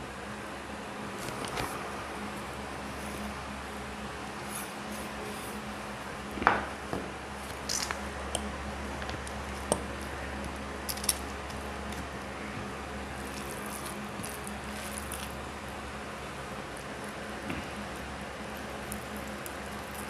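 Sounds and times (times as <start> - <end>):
steady low hum: 0.0 - 20.0
fingers squishing rice: 13.1 - 15.6, 16.3 - 20.0.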